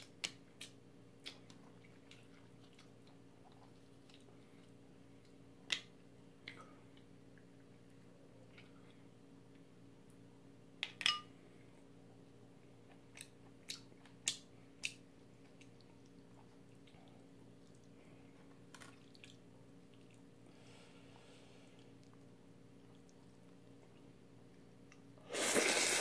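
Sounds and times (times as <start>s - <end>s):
sharp clicks and smacks: 0.0s - 1.6s
chewing: 0.6s - 5.4s, 12.9s - 20.3s.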